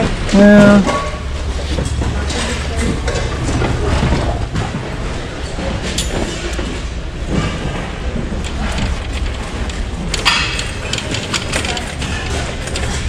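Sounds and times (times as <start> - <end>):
cart wheels rumbling on concrete: 0.0 - 13.0
cart seat rattling and clicking: 1.6 - 13.0.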